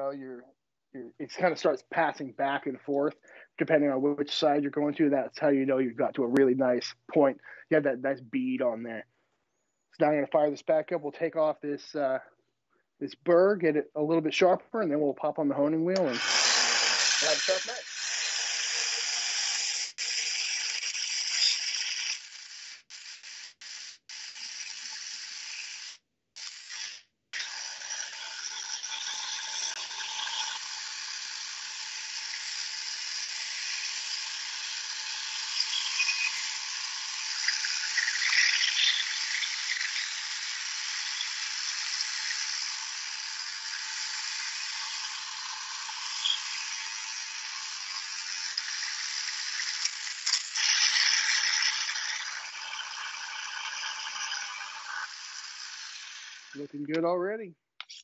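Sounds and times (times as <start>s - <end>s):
belt sander grinding knife blade: 16.0s - 56.6s.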